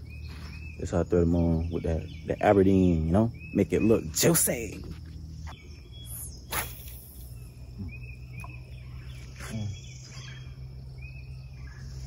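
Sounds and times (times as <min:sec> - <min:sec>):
steady low hum: 0:00.0 - 0:12.0
brief swish: 0:06.5 - 0:07.2.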